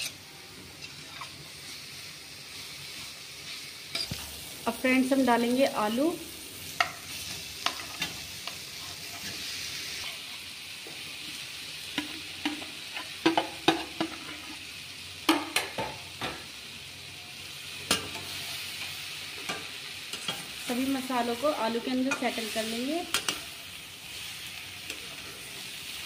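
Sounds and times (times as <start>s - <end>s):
sauce sizzling in a pan: 0.0s - 26.0s.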